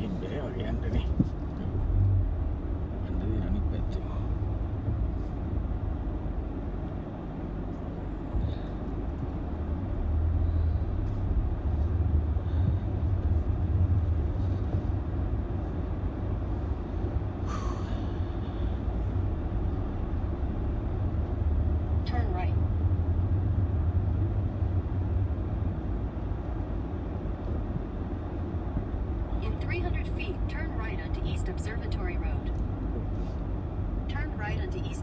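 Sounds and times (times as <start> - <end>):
car engine and tyres rumbling: 0.0 - 35.0.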